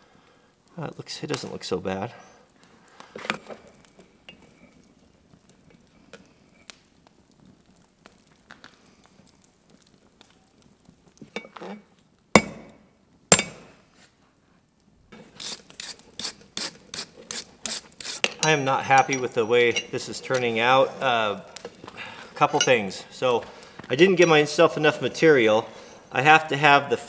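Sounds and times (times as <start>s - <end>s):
hammer striking steel on anvil: 12.4s - 12.7s, 13.3s - 13.7s
tools clinking: 18.1s - 20.6s, 22.4s - 23.0s.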